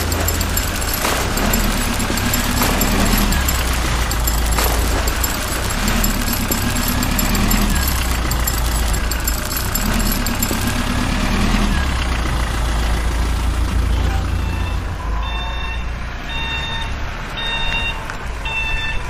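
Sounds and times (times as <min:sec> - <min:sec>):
reversing alarm beeping: 0:14.4 - 0:19.0.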